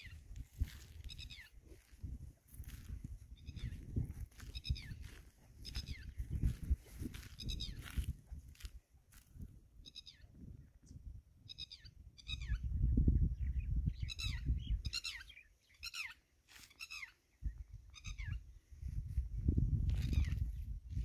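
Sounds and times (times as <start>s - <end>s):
walking through dry grass: 0.0s - 9.4s, 16.4s - 17.1s, 18.8s - 21.0s.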